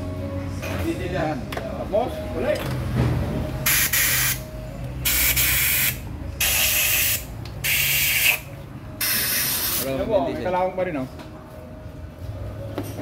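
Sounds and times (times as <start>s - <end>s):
compressed air hissing bursts: 3.6s - 8.4s, 9.0s - 9.9s.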